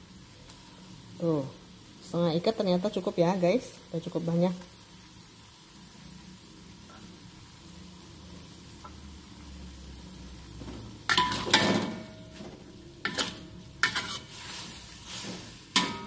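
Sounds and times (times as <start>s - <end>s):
pan sizzling: 0.0s - 16.0s
metal spatula scraping wok: 10.9s - 16.0s.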